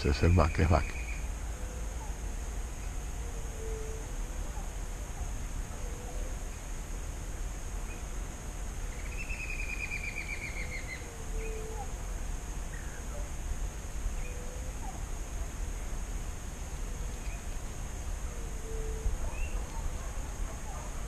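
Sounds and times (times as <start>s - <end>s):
high insect whine: 0.0s - 21.0s
bird trill: 9.0s - 11.6s.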